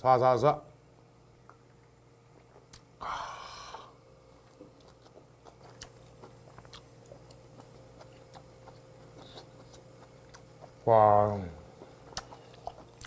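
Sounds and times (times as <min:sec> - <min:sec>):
close-up wet chewing: 0:04.4 - 0:10.9, 0:11.6 - 0:13.0.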